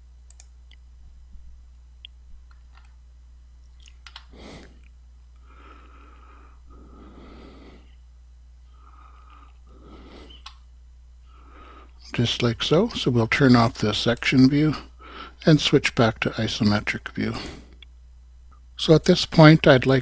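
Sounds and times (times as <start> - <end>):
low steady hum: 0.0 - 20.0
faint clicks: 0.3 - 0.8
soft whistling breathing: 9.8 - 10.5.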